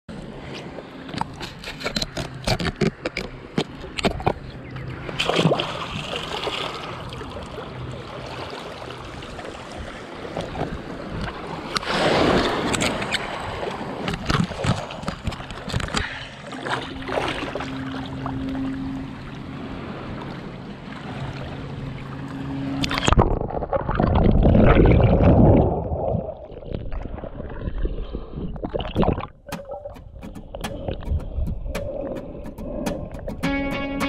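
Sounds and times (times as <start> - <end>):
sharp clicks and knocks: 1.1 - 4.4, 29.4 - 34.0
water splashing: 4.9 - 33.9
low steady hum: 15.4 - 34.0.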